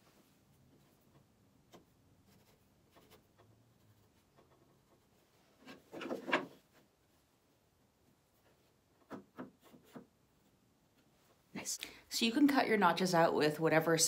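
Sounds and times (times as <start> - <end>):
pencil scratching on wood: 0.8 - 6.5.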